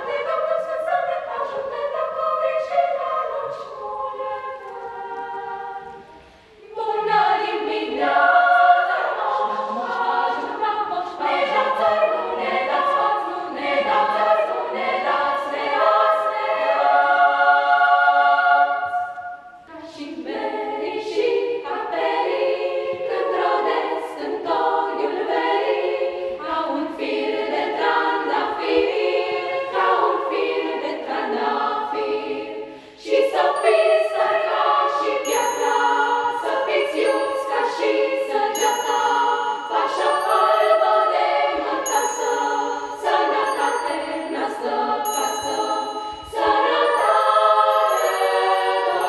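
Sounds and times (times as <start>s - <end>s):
children's choir singing a carol: 0.0s - 49.0s
small high bells ringing: 35.2s - 36.4s, 38.5s - 40.9s, 41.8s - 44.4s, 45.0s - 49.0s.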